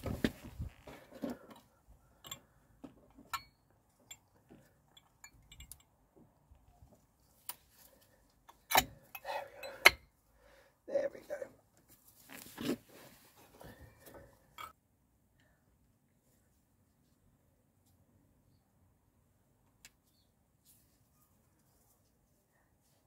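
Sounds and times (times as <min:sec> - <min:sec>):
metal parts clicking and clinking: 0:03.2 - 0:05.9.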